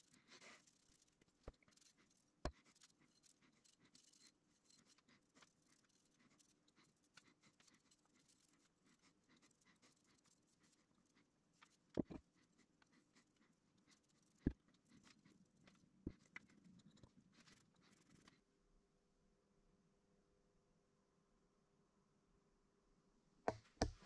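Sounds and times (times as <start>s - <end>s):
paintbrush scratching on metal: 0.0s - 18.4s.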